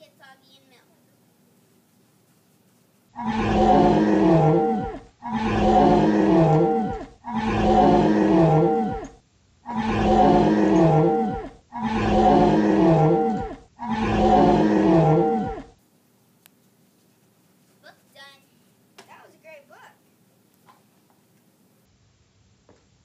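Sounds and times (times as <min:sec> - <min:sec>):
animal roar: 0:03.1 - 0:15.8.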